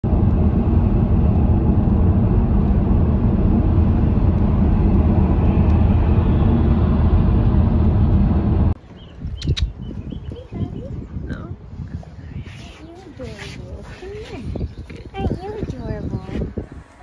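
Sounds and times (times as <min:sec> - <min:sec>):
car cabin road and engine drone: 0:00.0 - 0:08.8.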